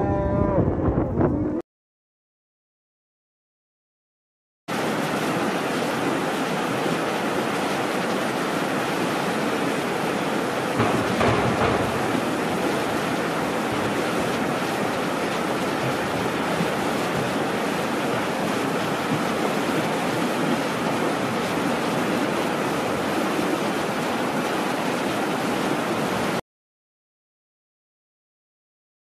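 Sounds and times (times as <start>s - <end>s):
river rushing over rapids: 4.7s - 26.4s.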